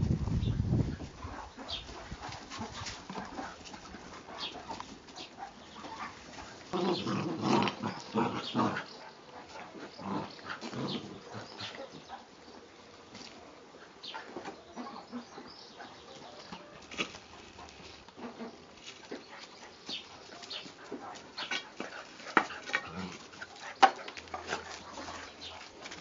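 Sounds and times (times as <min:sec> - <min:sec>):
puppies scuffling: 0:00.0 - 0:26.0
puppies growling and yapping: 0:01.2 - 0:12.2, 0:21.4 - 0:26.0.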